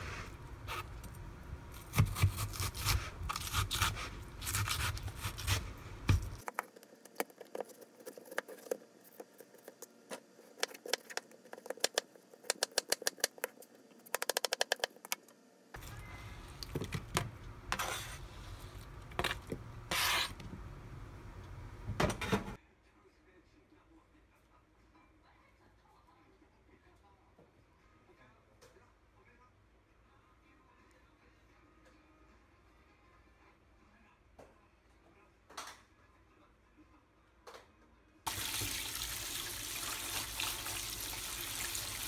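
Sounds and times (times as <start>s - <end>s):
knife cutting watermelon: 1.7s - 15.2s, 19.2s - 20.4s
fast taps: 10.7s - 15.2s.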